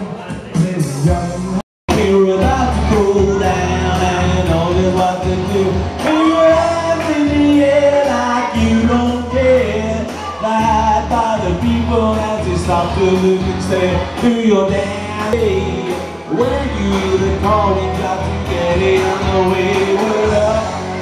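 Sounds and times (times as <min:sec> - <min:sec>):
music backing track: 0:00.0 - 0:21.0
person singing: 0:00.0 - 0:21.0.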